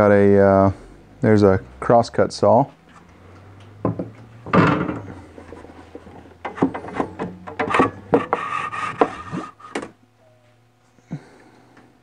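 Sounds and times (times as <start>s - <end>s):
knocks: 3.8s - 5.1s
saw blade scraping against wood: 5.0s - 9.9s.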